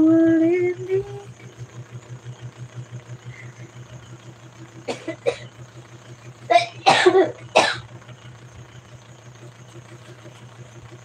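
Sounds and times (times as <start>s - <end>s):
low pulsing hum: 0.0s - 11.0s
woman coughing: 4.9s - 5.5s, 6.5s - 7.8s.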